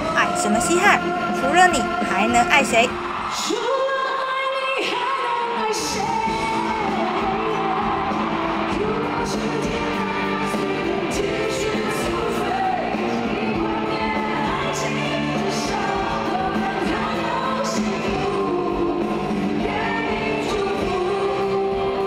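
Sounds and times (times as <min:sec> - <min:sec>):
woman singing: 0:00.0 - 0:22.0
pop-rock band with guitars: 0:05.5 - 0:22.0.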